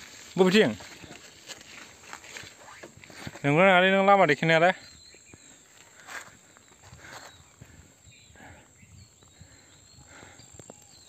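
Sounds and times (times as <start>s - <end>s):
faint rustles and crunches: 0.0s - 3.8s, 5.1s - 7.8s.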